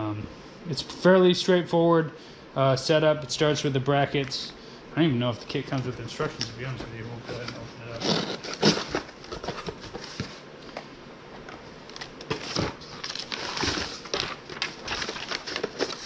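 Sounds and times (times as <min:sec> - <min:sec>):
packaging crinkling and rustling: 0:05.5 - 0:10.5, 0:11.4 - 0:16.0.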